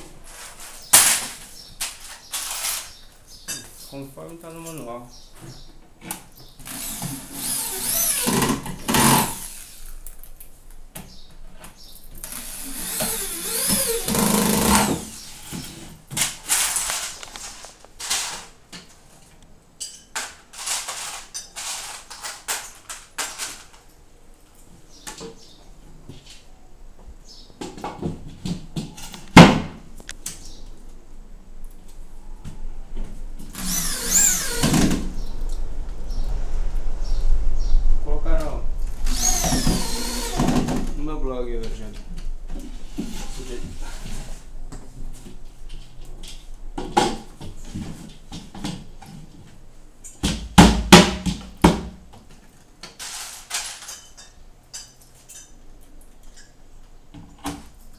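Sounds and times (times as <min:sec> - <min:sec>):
electric drill driving screws: 0:02.4 - 0:02.9, 0:06.6 - 0:09.8, 0:12.2 - 0:15.1, 0:33.4 - 0:35.0, 0:39.0 - 0:40.8.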